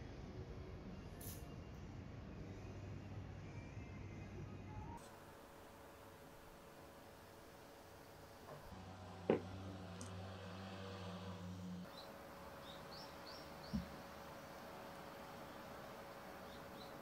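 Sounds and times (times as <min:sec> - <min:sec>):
low steady hum: 0:00.0 - 0:17.0
mug knocking on wooden desk: 0:09.3 - 0:09.5
small bird chirping: 0:11.9 - 0:14.0, 0:16.4 - 0:17.0.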